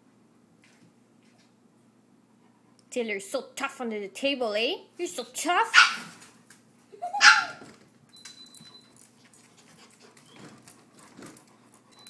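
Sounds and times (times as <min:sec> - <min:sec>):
dog barking: 0:05.7 - 0:06.2, 0:07.1 - 0:07.6.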